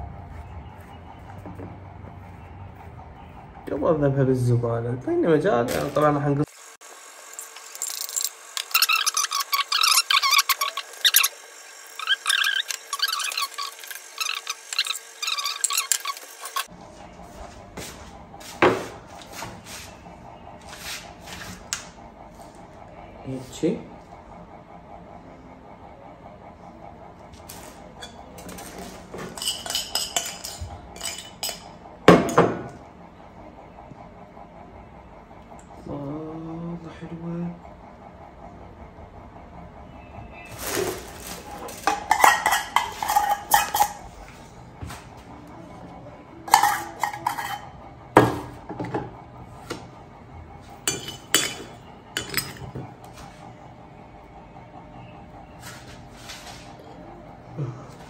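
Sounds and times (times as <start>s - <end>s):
metal spoon scraping ceramic bowl: 28.0s - 31.7s, 41.6s - 44.0s, 46.5s - 47.8s.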